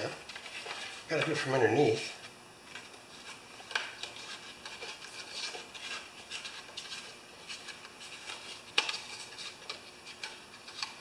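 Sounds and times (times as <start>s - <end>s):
clicks and rubbing of card in engine: 2.7s - 11.0s.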